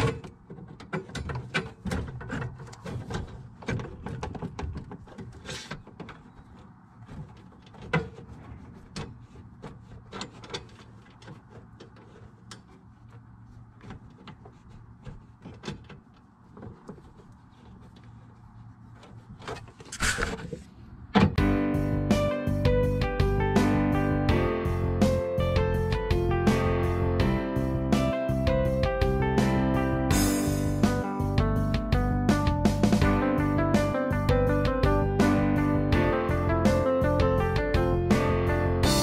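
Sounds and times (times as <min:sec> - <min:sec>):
metal pipe clicks and scrapes: 0:00.0 - 0:20.7
rustle and scrape: 0:00.0 - 0:21.0.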